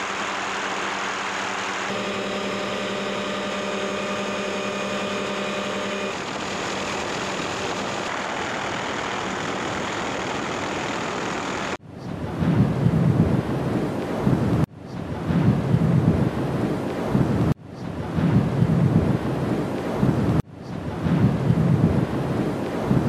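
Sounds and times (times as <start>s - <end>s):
helicopter engine and rotor drone: 0.0s - 11.8s
lava low rumble: 7.2s - 23.0s
wind buffeting microphone: 12.1s - 23.0s.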